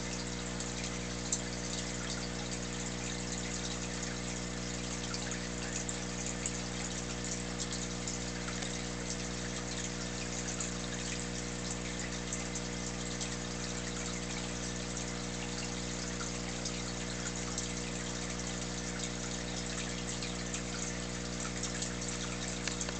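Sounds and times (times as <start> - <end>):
water bubbling and trickling: 0.0 - 22.9
air pump humming: 22.0 - 22.9.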